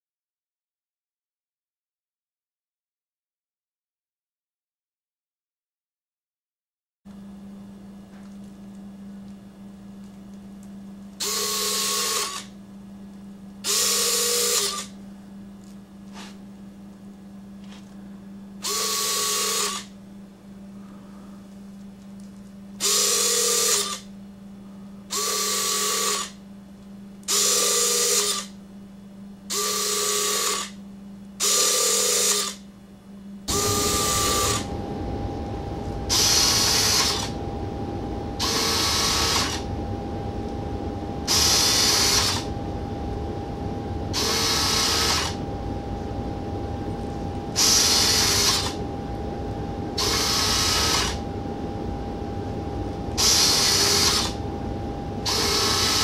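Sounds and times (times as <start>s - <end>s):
steady hum: 7.1s - 56.0s
landing gear motor whirring: 33.5s - 40.6s, 41.2s - 45.8s, 46.7s - 48.9s, 49.8s - 51.4s, 52.9s - 54.5s, 55.2s - 56.0s.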